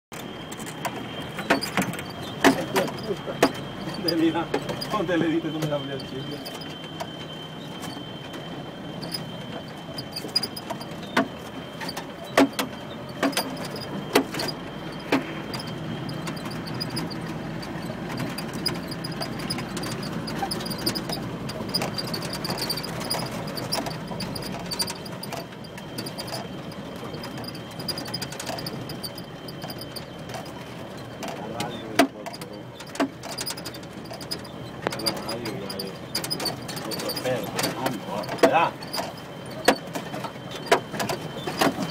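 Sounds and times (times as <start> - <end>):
vehicle body knocking and rattling: 0.1 - 41.9
vehicle engine and road drone: 0.1 - 41.9.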